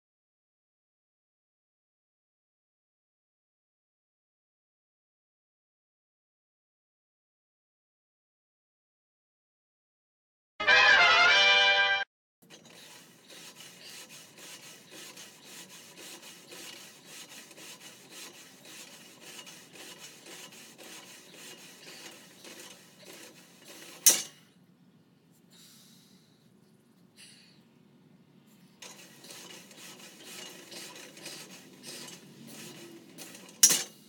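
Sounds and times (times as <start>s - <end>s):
barbell rubbing and rasping: 12.5s - 24.4s, 28.7s - 34.0s.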